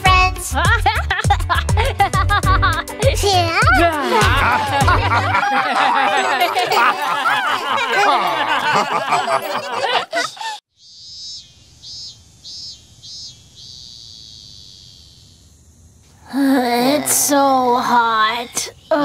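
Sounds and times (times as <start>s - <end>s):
cartoon song with singing: 0.0s - 1.1s, 3.0s - 5.4s
insect chirping: 10.7s - 19.0s.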